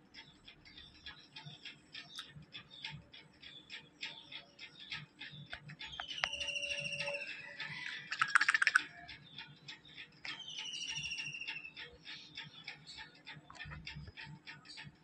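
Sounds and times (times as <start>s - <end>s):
rapid sharp ticking clicks: 0.0s - 15.0s
falling trilled bird calls: 0.2s - 14.8s.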